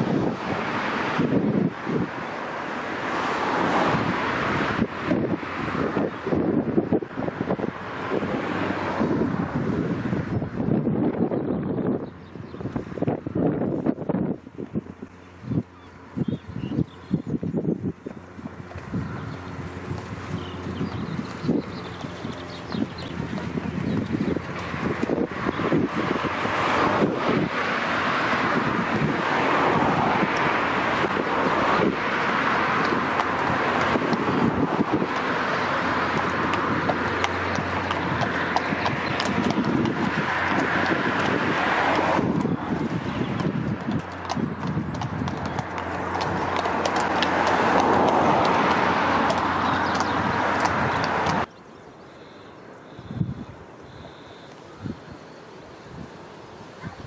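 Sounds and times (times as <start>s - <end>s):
wind buffeting microphone: 0.0s - 51.7s, 52.9s - 57.0s
horse hooves clip-clopping: 13.6s - 51.6s
loud rushing noise: 22.9s - 43.6s.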